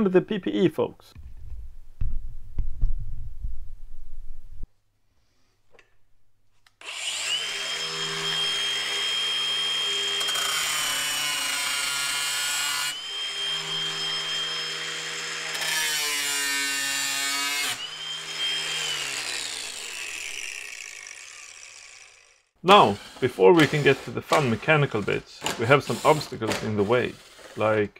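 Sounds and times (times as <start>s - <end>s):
angle grinder cutting metal: 6.8s - 27.9s.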